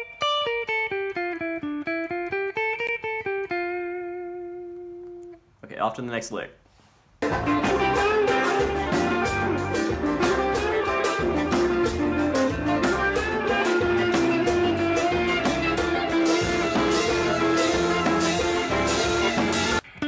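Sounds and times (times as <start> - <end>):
electric guitar: 0.0 - 5.4, 7.2 - 20.0
drum kit: 7.2 - 19.8
bass guitar: 7.2 - 20.0.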